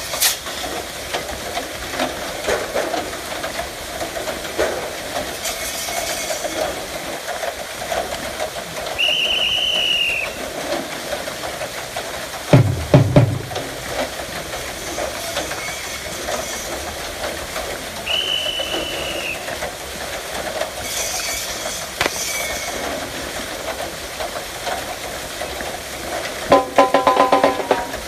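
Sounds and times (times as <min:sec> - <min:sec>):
high whistle-like tone: 0:09.0 - 0:10.3, 0:18.1 - 0:19.4
sharp knock: 0:22.0 - 0:22.5.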